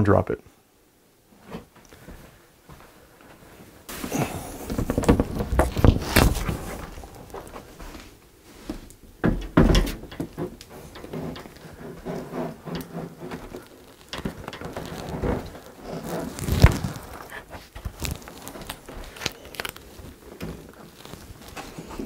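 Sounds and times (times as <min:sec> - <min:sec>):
tv knocking against metal brackets: 0:09.2 - 0:10.6.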